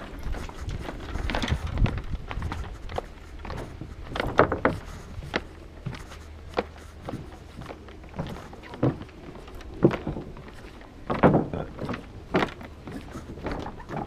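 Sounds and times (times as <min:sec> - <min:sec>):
low steady hum: 0:00.0 - 0:14.0
hollow knocks and thumps: 0:04.1 - 0:05.4, 0:11.1 - 0:14.0.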